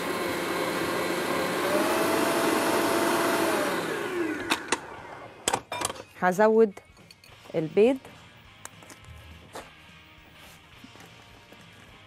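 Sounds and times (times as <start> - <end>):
stand mixer motor whirring: 0.0 - 5.4.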